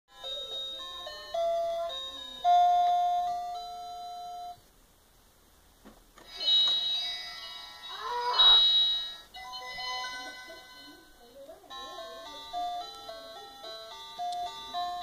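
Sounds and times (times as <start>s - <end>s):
electronic toy beeping tune: 6.3s - 11.1s.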